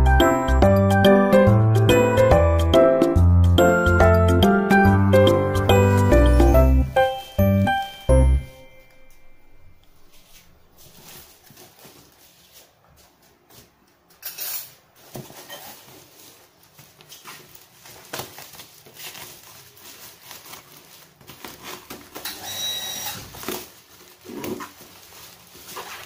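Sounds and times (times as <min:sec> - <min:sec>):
plastic wrapping crinkling: 0:06.3 - 0:12.6, 0:15.0 - 0:26.0.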